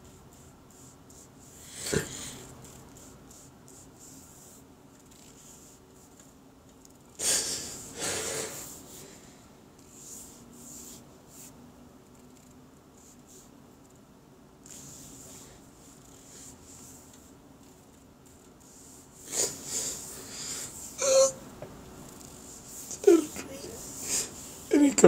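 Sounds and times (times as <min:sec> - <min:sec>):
man sobbing and sniffling: 0:01.7 - 0:02.4, 0:07.2 - 0:08.8, 0:19.2 - 0:21.4, 0:22.7 - 0:24.5.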